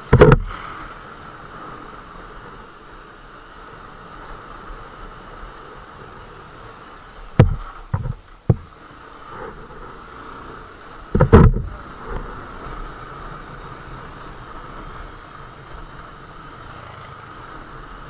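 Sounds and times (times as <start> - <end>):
knocks of bike hitting bumps: 0.0 - 0.7, 7.3 - 8.8, 11.1 - 12.3
wind noise: 0.0 - 9.9, 11.0 - 13.5
motorcycle engine: 7.4 - 18.0.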